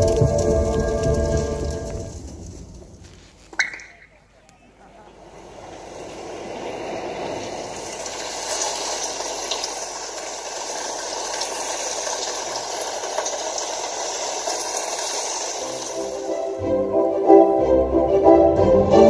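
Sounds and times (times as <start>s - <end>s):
steady rushing noise effect: 5.0s - 8.8s.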